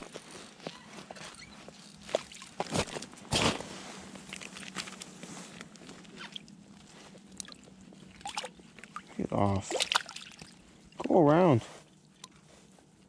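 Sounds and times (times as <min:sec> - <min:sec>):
winter clothing rustling: 0:00.0 - 0:08.8.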